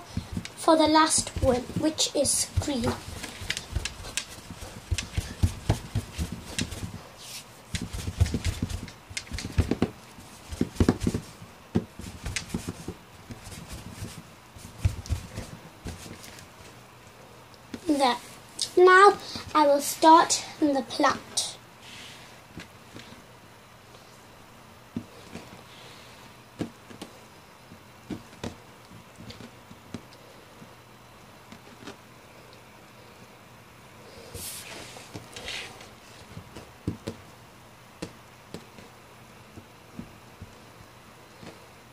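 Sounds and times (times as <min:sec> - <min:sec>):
faint steady hiss: 0:00.0 - 0:41.9
dough rubbing on table: 0:00.1 - 0:16.5, 0:34.4 - 0:36.6.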